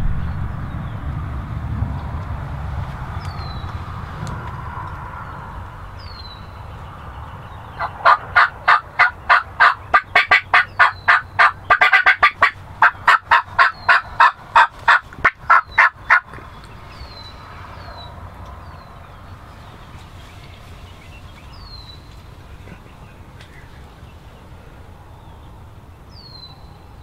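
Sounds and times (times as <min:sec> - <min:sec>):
turkey clucking: 0:07.7 - 0:16.6
turkey yelps: 0:07.8 - 0:16.3.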